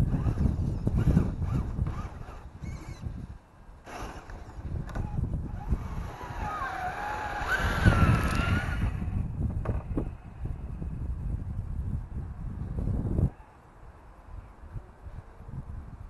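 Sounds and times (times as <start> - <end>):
electric motor and gear whine: 0.0 - 3.2, 3.8 - 10.2
wind rumble on microphone: 0.0 - 16.0.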